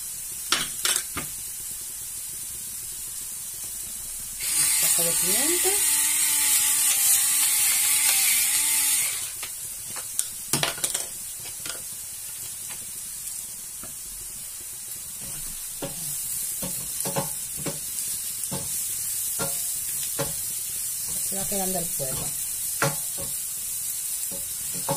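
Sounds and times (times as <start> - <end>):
leeks sizzling in oil: 0.0 - 24.9
pepper mill grinding: 4.4 - 9.5.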